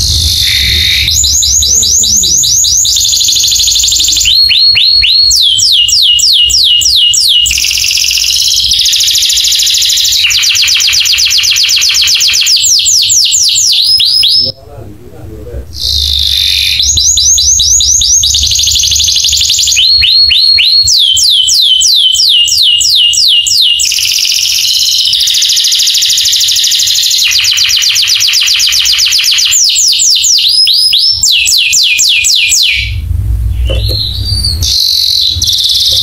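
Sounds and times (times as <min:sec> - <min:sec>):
low rumble: 0:00.0 - 0:04.5, 0:32.8 - 0:36.0
canary singing trills: 0:00.0 - 0:14.6, 0:15.7 - 0:36.0.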